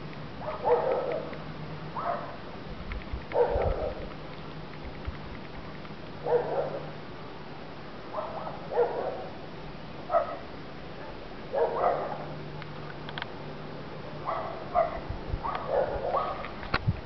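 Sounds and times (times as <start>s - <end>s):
dog barking: 0.4s - 1.3s, 2.0s - 2.4s, 3.4s - 4.0s, 6.2s - 6.9s, 8.1s - 9.3s, 10.1s - 10.4s, 11.0s - 12.3s, 14.2s - 16.5s.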